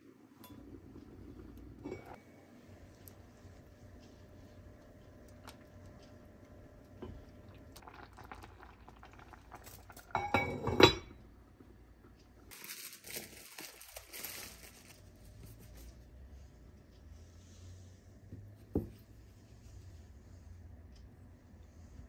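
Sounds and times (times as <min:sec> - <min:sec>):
spatula scraping pot: 0:01.4 - 0:02.2
kitchenware clattering: 0:01.8 - 0:02.2, 0:10.1 - 0:11.2
soft rustling of handling: 0:12.0 - 0:20.4.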